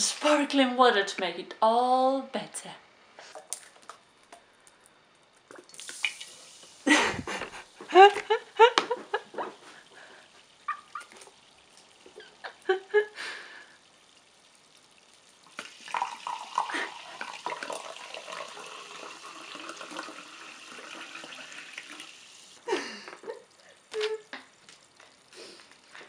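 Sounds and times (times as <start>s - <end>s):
woman laughing: 6.9s - 9.6s, 12.2s - 13.5s, 16.7s - 17.2s, 22.6s - 24.3s
sparkling water pouring into glass: 10.7s - 22.6s.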